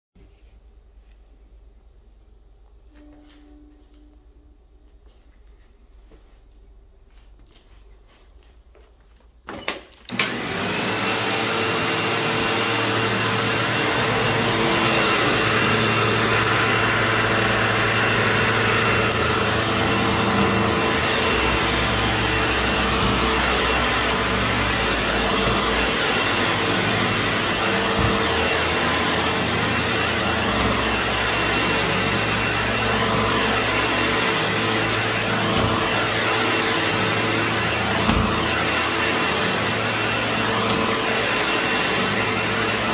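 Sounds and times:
vacuum cleaner running: 9.5 - 42.9.

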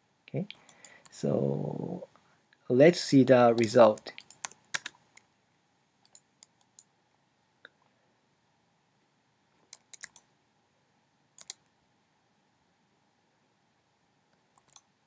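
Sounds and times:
computer mouse clicks: 0.4 - 1.1, 3.6 - 5.3, 6.0 - 6.9, 9.7 - 10.3, 11.4 - 11.7, 14.3 - 14.9.

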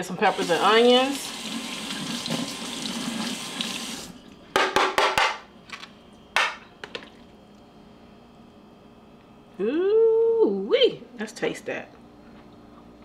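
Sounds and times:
faucet running: 0.2 - 4.2.

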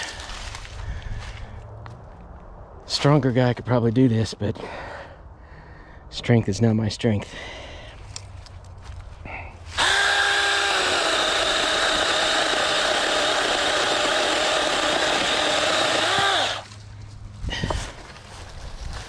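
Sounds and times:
electric chainsaw cutting wood: 9.8 - 16.7.

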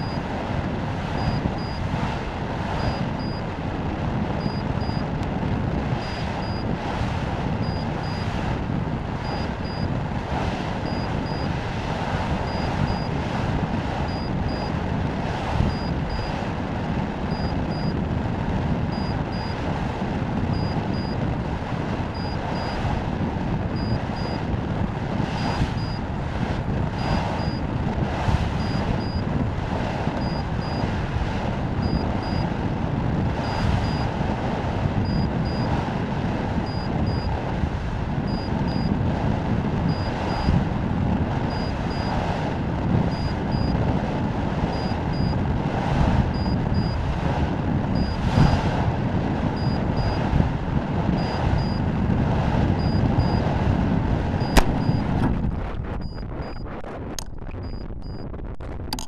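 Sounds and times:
wind rushing over microphone: 0.0 - 59.0
short high faint beep: 57.6 - 58.2.

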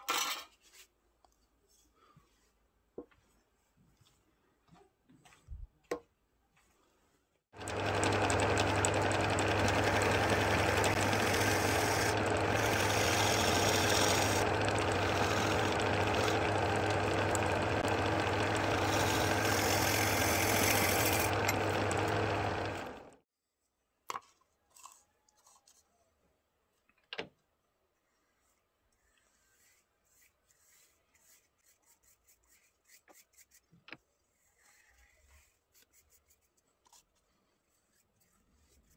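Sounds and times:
wood lathe running: 7.6 - 23.2.

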